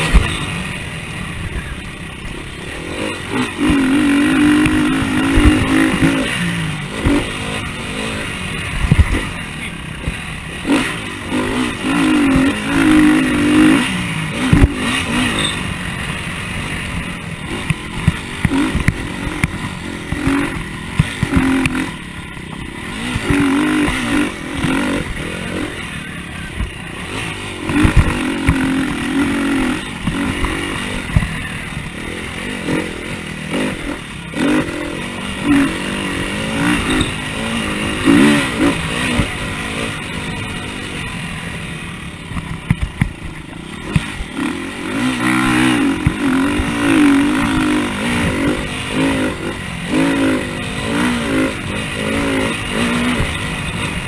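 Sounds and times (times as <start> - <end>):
motocross engine revving: 0.0 - 54.0
bike knocks and rattles: 3.6 - 7.6, 14.4 - 15.7, 17.5 - 25.3, 26.5 - 31.9, 42.2 - 44.4, 45.1 - 49.0.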